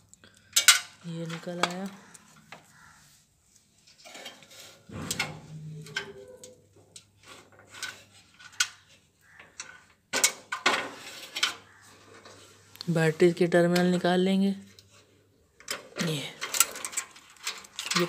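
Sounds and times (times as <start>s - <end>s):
clicks of metal parts handled: 15.6s - 18.0s.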